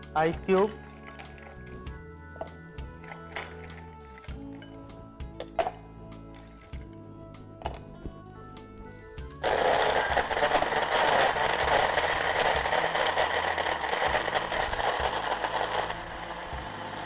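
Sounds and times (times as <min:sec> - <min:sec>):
electric mixer grinder running: 0:09.3 - 0:17.0.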